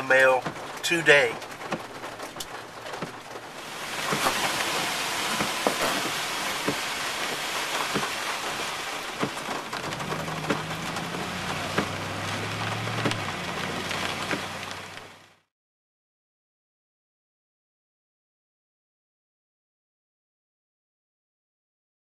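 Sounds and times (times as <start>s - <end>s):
car engine hum: 0.0s - 15.4s
heavy rain on car roof: 0.0s - 15.5s.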